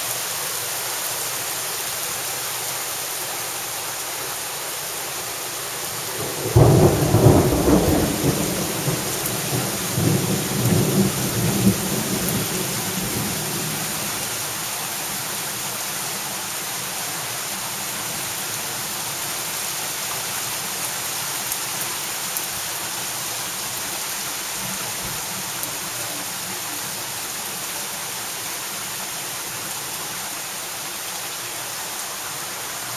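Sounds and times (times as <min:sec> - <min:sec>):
heavy rain on pavement and cars: 0:00.0 - 0:32.9
thunderclap rumbling: 0:06.3 - 0:13.2.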